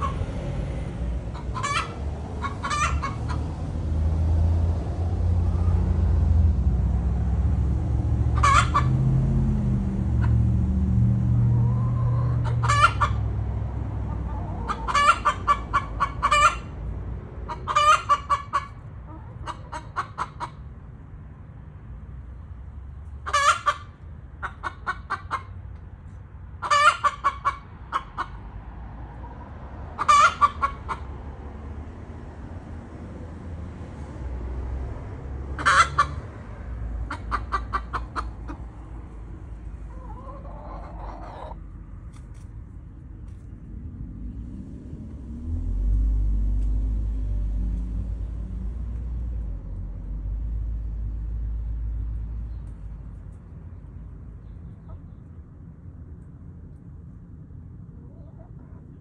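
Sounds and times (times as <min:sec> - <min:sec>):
hens cackling: 0:00.0 - 0:00.4, 0:01.2 - 0:03.6, 0:08.2 - 0:09.1, 0:11.4 - 0:16.8, 0:17.4 - 0:20.7, 0:23.2 - 0:25.6, 0:26.6 - 0:28.4, 0:29.2 - 0:31.2, 0:35.5 - 0:41.6, 0:57.9 - 0:59.0.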